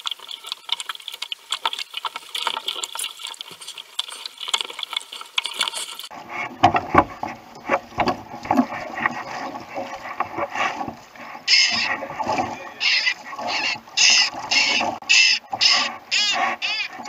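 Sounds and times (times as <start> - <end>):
seabird squawking: 11.4 - 17.0.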